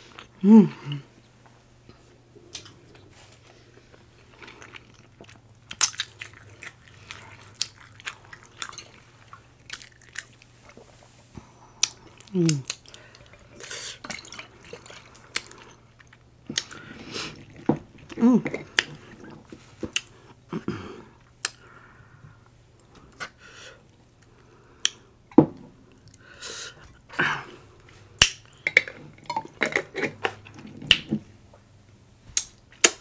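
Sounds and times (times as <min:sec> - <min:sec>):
hummed mm: 0:00.4 - 0:01.1, 0:11.4 - 0:12.8
person chewing food: 0:01.9 - 0:21.8.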